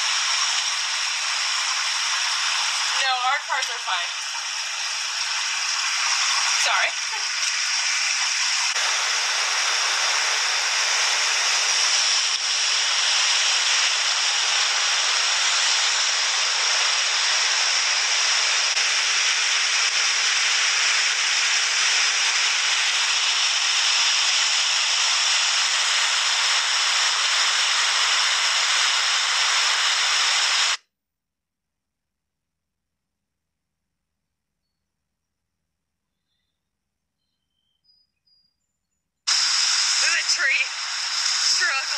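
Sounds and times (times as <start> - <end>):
floodwater rushing over rapids: 0.0 - 30.8, 39.3 - 41.9.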